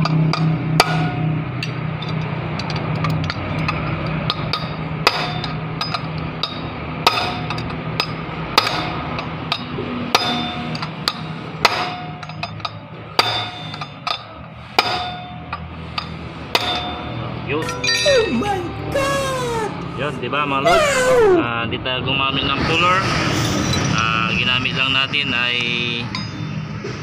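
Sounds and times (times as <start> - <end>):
hammer striking metal rod: 0.0 - 2.3, 3.2 - 18.1.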